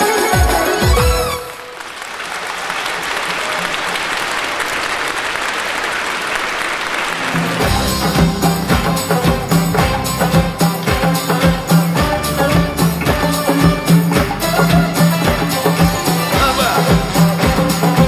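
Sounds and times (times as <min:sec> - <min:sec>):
audience applauding: 0:00.8 - 0:18.0
band playing instrumental: 0:07.1 - 0:18.0
drum beats: 0:07.2 - 0:18.0.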